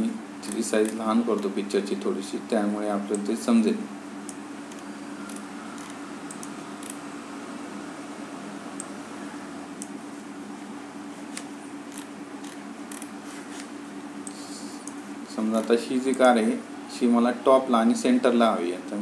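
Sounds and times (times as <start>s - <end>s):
low hum with hiss: 0.0s - 19.0s
computer mouse clicks: 4.3s - 7.0s, 11.4s - 13.1s.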